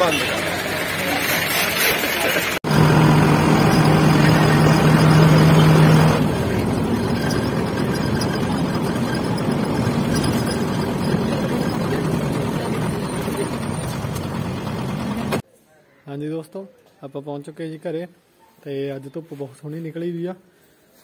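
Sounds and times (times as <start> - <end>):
bus engine running: 0.0 - 15.4
road noise: 0.0 - 15.4.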